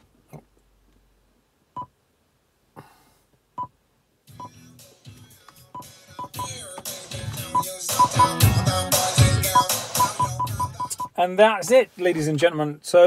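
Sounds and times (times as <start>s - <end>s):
music through car speakers: 4.2s - 11.2s.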